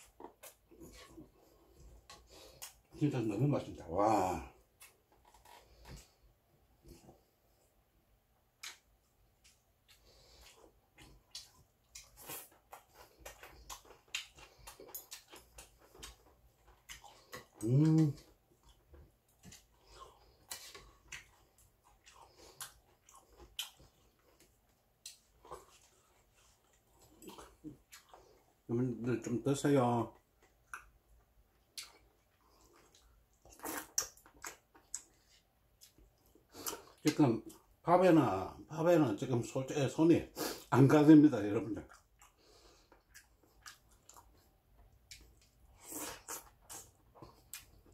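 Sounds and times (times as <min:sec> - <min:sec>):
man chewing with wet smacks: 0:00.0 - 0:03.1, 0:04.6 - 0:06.2, 0:08.4 - 0:28.7, 0:30.0 - 0:37.8, 0:41.4 - 0:47.9.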